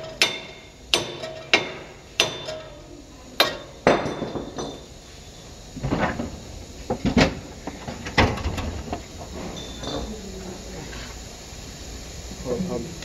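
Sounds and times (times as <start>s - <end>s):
metal knocks and clanks: 0.0s - 2.7s
hammer striking metal: 0.0s - 2.8s, 3.4s - 4.9s.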